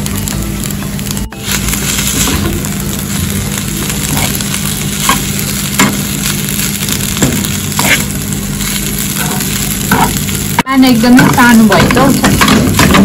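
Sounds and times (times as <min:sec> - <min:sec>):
fried rice sizzling in a pan: 0:00.0 - 0:13.0
metal spoon scraping a pan: 0:07.8 - 0:08.1.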